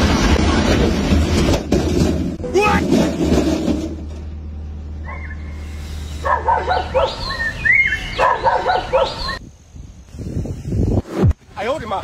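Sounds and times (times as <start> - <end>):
dog barking and yelping: 6.2 - 9.4.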